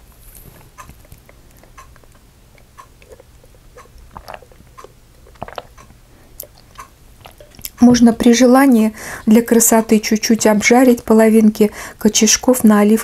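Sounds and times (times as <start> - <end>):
chewing crunchy snack: 0.8 - 7.8.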